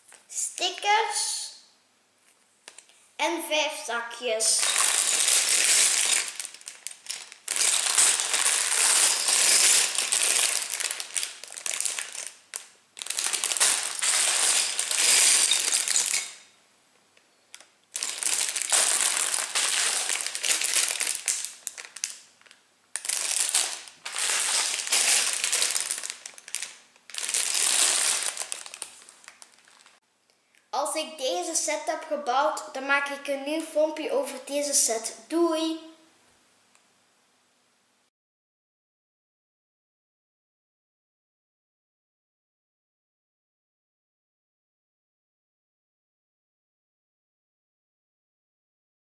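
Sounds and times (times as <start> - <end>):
plastic bags crinkling: 4.5 - 16.5, 17.5 - 30.0.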